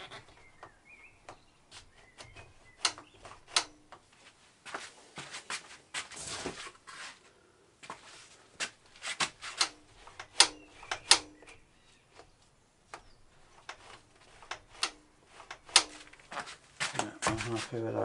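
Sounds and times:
sharp clicks and knocks: 0:00.0 - 0:04.1, 0:08.6 - 0:12.3, 0:12.9 - 0:17.6.

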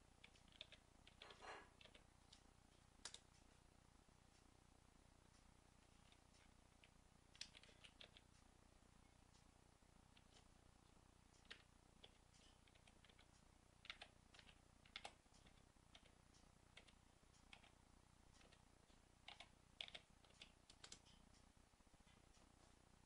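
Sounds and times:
keyboard keystrokes: 0:11.4 - 0:16.1, 0:19.3 - 0:21.1.

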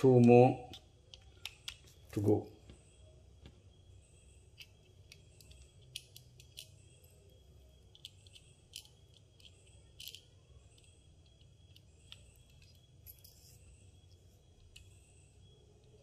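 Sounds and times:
low room hum: 0:00.0 - 0:16.0
plastic parts clicking: 0:04.6 - 0:07.1, 0:07.9 - 0:13.3.

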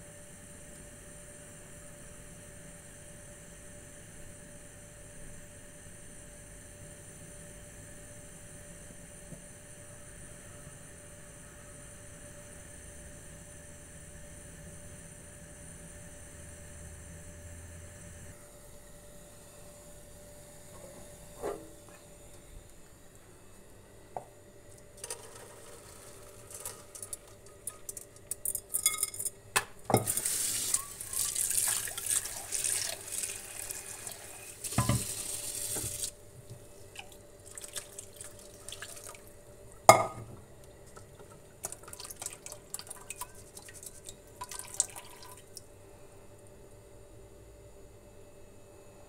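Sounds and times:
tap water running: 0:29.9 - 0:39.3, 0:39.9 - 0:45.6
strainer knocking against sink: 0:34.7 - 0:35.2.

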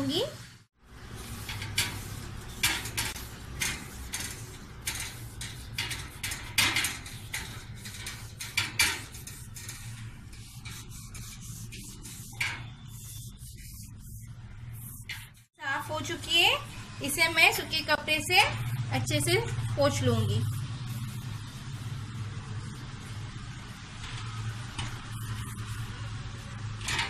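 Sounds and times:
steady low hum: 0:00.8 - 0:26.8
scrubbing metal wire basket: 0:01.1 - 0:14.3.

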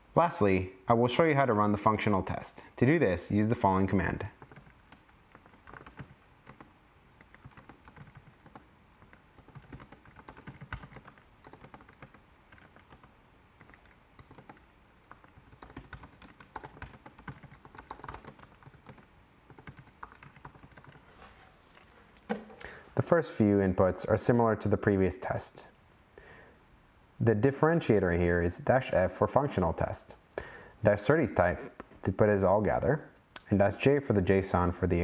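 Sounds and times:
keyboard typing clicks: 0:04.4 - 0:21.0.

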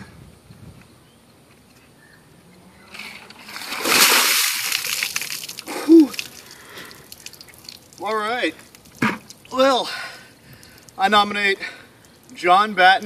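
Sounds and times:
bucket of water splashing: 0:03.3 - 0:09.6
person crying out: 0:05.6 - 0:06.2.

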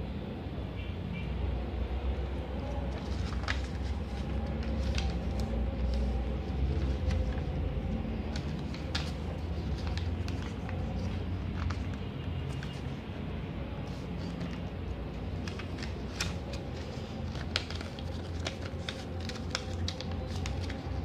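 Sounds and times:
paper rustling and crinkling: 0:02.6 - 0:13.2, 0:13.8 - 0:21.0.

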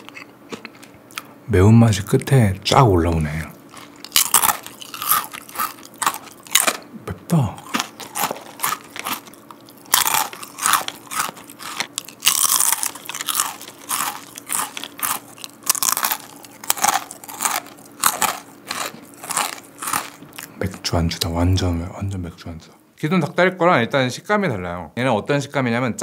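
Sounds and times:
crunching and chewing fried snack: 0:00.0 - 0:01.3, 0:03.2 - 0:20.6.

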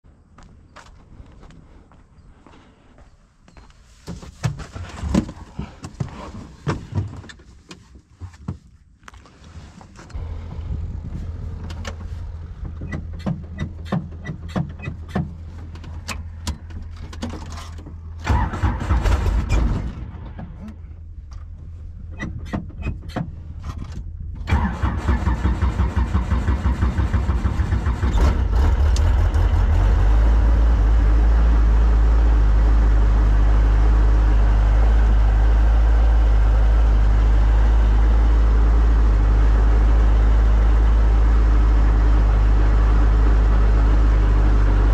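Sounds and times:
engine starter clicks: 0:17.6 - 0:20.0, 0:24.4 - 0:29.4.

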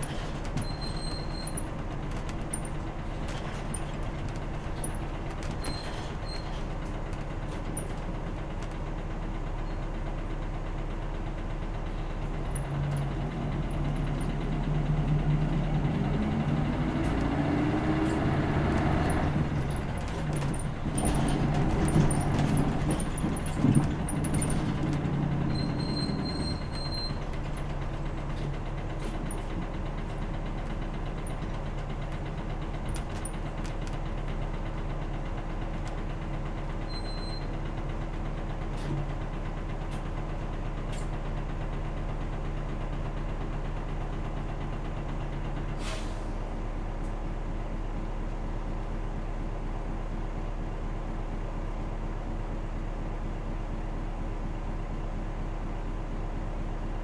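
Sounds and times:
bus diesel engine running: 0:00.0 - 0:57.0
sharp hiss of released air: 0:45.8 - 0:46.4.

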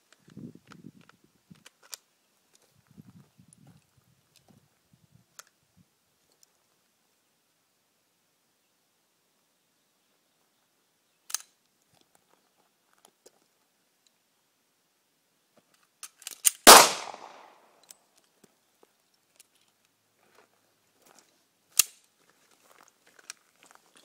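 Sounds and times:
pistol shot: 0:16.7 - 0:17.6.

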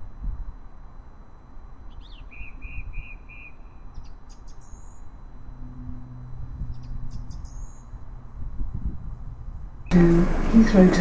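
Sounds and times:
steady low hum: 0:07.7 - 0:11.0.

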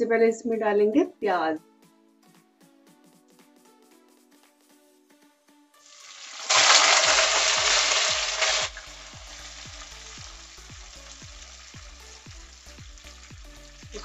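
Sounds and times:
onions sizzling in hot oil: 0:05.8 - 0:14.0.

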